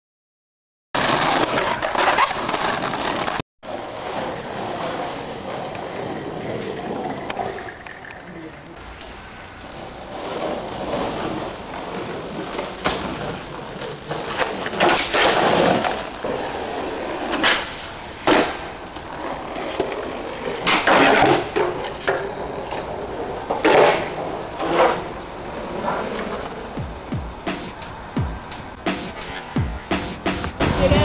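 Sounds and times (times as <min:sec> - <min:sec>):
skateboard wheels rolling on pavement: 0:01.0 - 0:31.0
skateboard wooden clacks: 0:10.2 - 0:16.4, 0:17.2 - 0:31.0.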